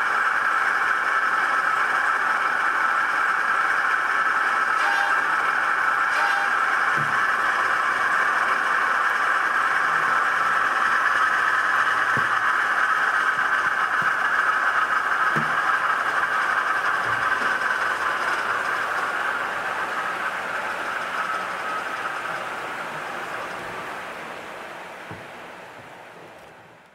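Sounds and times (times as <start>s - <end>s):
model locomotive humming: 0.0s - 26.9s.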